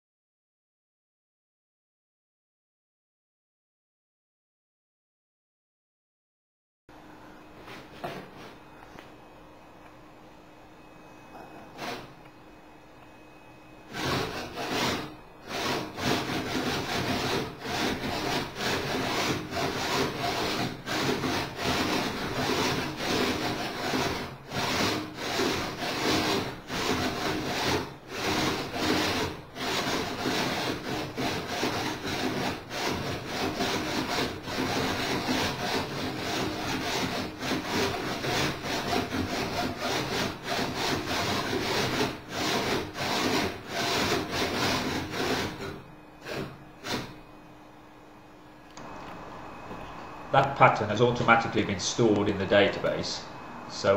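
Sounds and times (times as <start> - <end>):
winch motors whirring: 10.8 - 47.5.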